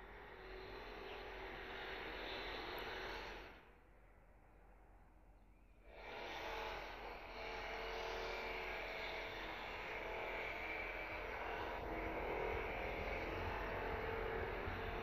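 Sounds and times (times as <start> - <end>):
drone propellers whining: 9.2 - 15.0.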